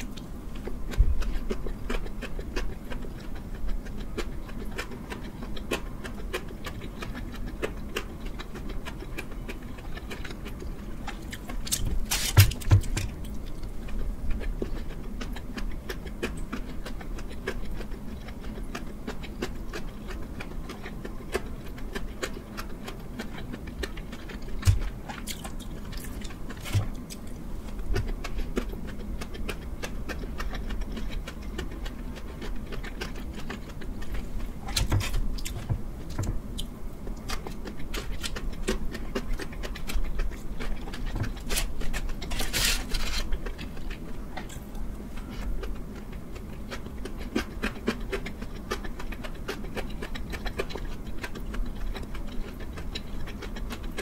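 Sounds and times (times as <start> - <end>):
chewing with wet mouth clicks: 0.0 - 54.0
low steady hum: 0.0 - 54.0.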